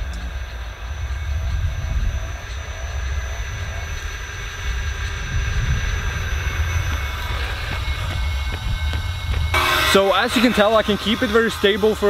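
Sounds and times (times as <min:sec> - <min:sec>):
wind rumble on microphone: 0:00.0 - 0:09.6
rc car motor humming: 0:00.0 - 0:12.0.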